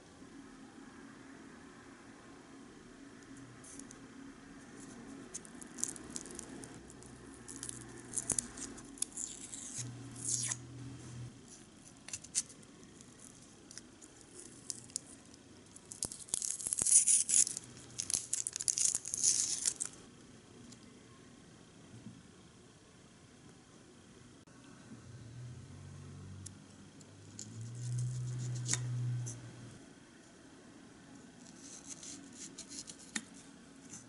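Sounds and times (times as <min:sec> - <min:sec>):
onion skin crackling and tearing: 0:05.3 - 0:10.6, 0:12.0 - 0:20.0.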